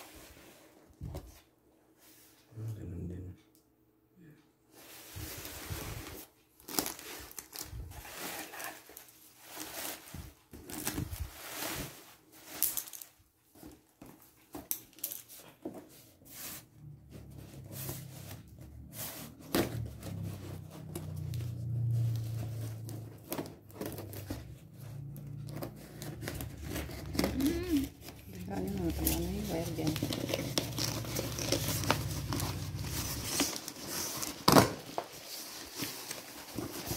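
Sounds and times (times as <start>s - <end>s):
packing tape tearing: 25.6s - 36.9s
cardboard box crinkling: 25.8s - 36.9s.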